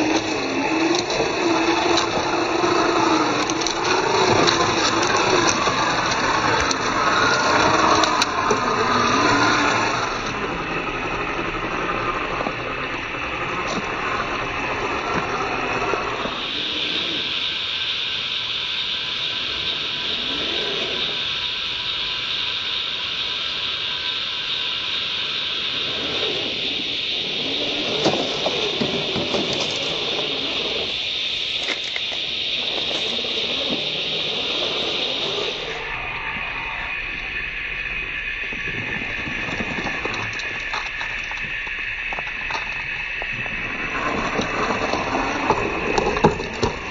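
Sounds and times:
tyres grinding on gravel: 0.0 - 17.8, 25.2 - 36.0, 38.4 - 46.9
electric motor and gears whirring: 0.0 - 46.9
steady high hiss: 0.0 - 46.9
stones clicking on rock: 39.3 - 42.8.

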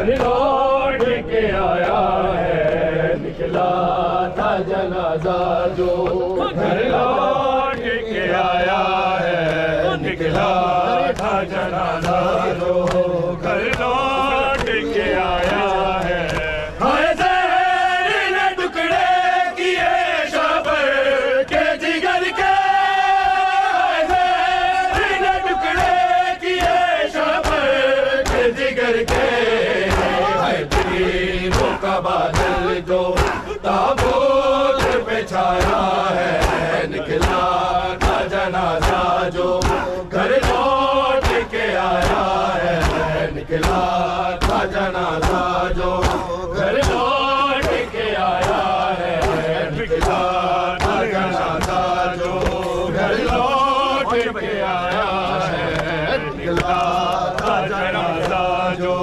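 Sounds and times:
men chanting a lament: 0.0 - 59.0
chest-beating slaps: 10.3 - 16.6, 22.4 - 55.1, 55.7 - 58.4.

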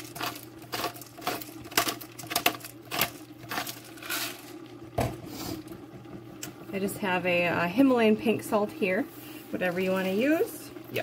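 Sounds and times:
pepper grinder crunching: 0.0 - 4.6.

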